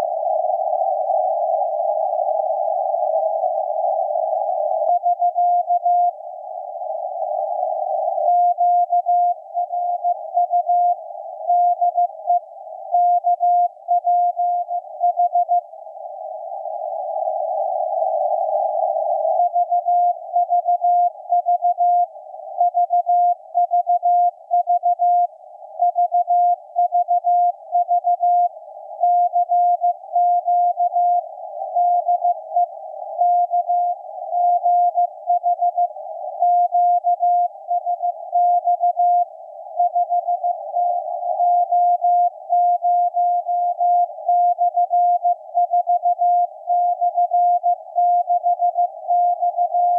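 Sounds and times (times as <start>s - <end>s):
morse code beeps: 13.0s - 15.6s, 19.4s - 28.5s, 31.8s - 32.4s, 36.5s - 39.2s, 41.4s - 49.9s.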